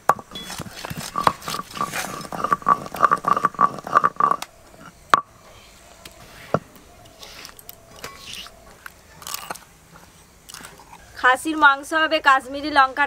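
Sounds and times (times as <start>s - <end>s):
knife scraping and cutting food: 0.4s - 4.4s.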